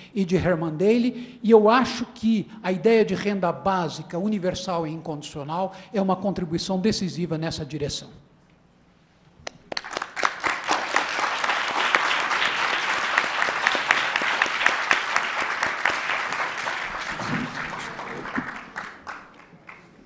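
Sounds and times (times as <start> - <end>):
audience applauding: 9.6 - 20.0.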